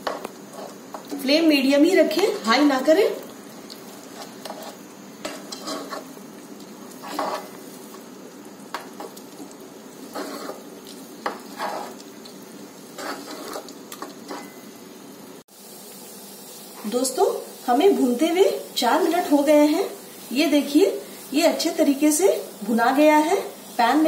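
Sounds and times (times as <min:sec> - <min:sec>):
wooden spoon scraping a pan: 0:00.0 - 0:01.3, 0:03.8 - 0:08.1, 0:08.7 - 0:14.6
low sizzle: 0:00.0 - 0:24.0.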